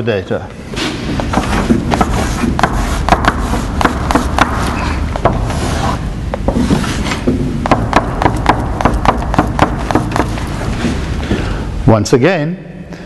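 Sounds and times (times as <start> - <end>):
chalk scraping on blackboard: 1.3 - 6.0
chalk tapping on board: 1.4 - 5.6, 7.6 - 10.5.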